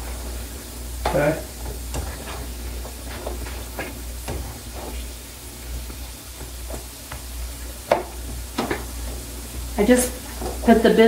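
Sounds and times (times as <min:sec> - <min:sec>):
potatoes sizzling in a skillet: 0:00.0 - 0:11.0
spatula scraping and tapping pan: 0:01.1 - 0:05.1.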